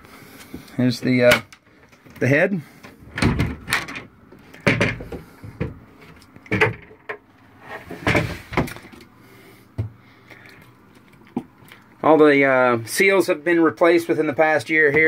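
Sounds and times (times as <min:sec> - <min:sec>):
light knocks and clunks: 0:04.6 - 0:07.2.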